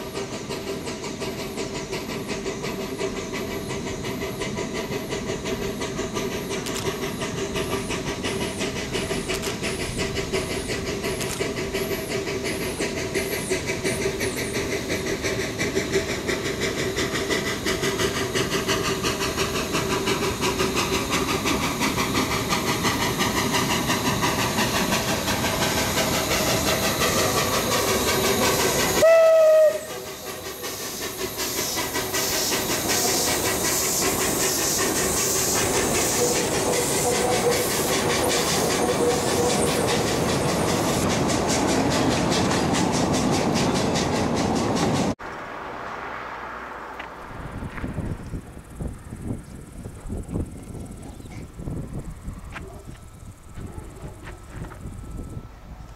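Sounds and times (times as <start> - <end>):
steam locomotive chuffing: 0.0 - 45.2, 47.3 - 55.9
steam hissing: 0.0 - 55.9
steam whistle blast: 29.0 - 30.4.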